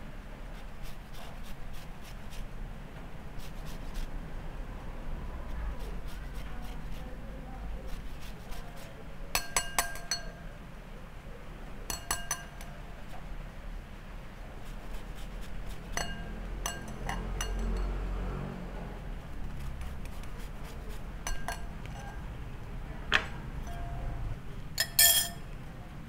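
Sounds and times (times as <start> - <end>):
peel rasping across grater: 5.6 - 7.2, 14.6 - 17.8
metal grater clinking on glass bowl: 9.3 - 10.4, 11.9 - 12.7, 15.7 - 18.0, 20.9 - 22.3, 23.6 - 24.0, 24.8 - 25.4.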